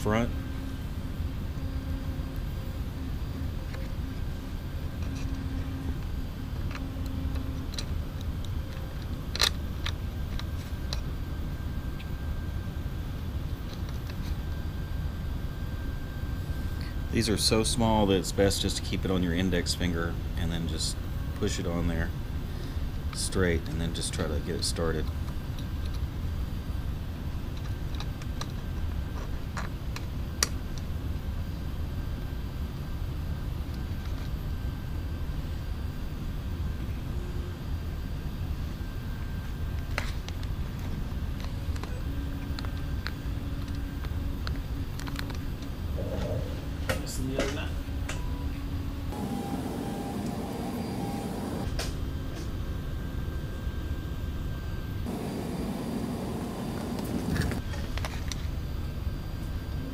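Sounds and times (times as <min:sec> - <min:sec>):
low background rumble: 0:55.1 - 0:57.6.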